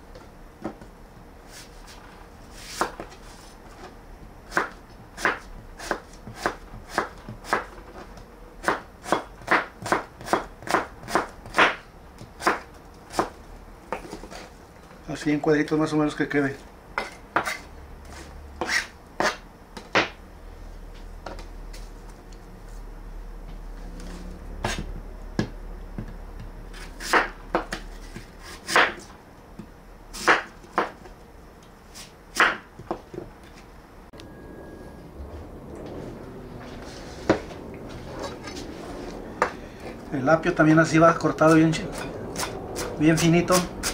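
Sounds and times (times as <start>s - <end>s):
knife chopping apple: 4.5s - 7.7s, 8.6s - 14.2s, 17.0s - 17.6s, 18.6s - 20.2s, 24.6s - 31.0s, 32.0s - 33.2s, 41.4s - 43.9s.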